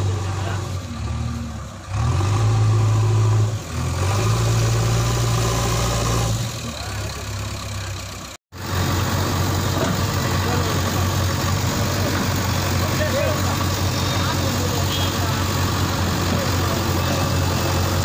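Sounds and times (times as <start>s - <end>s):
diesel engines running: 0.0s - 18.0s.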